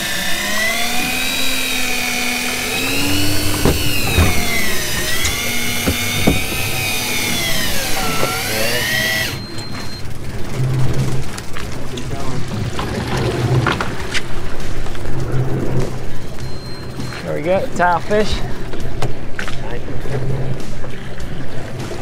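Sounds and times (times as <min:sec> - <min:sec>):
electric reel motor whining: 0:00.0 - 0:10.1
knocks: 0:02.6 - 0:07.5.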